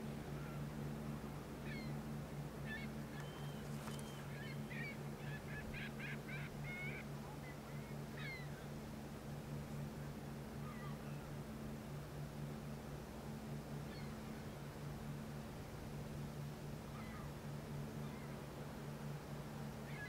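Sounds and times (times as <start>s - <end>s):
steady low hum: 0.0s - 20.0s
waterbirds honking: 16.9s - 17.4s.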